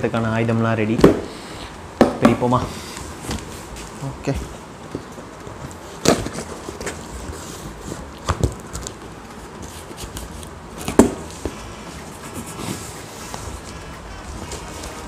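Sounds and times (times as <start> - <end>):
knocks on cardboard: 2.0 - 2.4.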